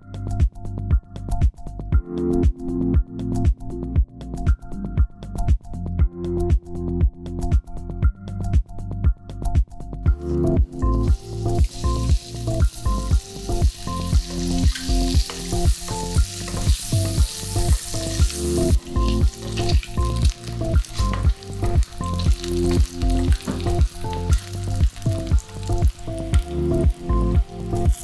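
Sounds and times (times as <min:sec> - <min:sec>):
background music with steady beat: 0:00.0 - 0:28.0
eggs sizzling in oil: 0:10.9 - 0:28.0.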